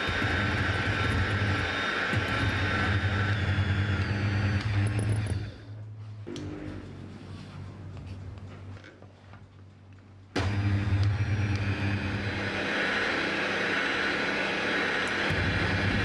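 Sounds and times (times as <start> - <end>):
electric hand mixer running: 0.0 - 5.6, 10.4 - 16.0.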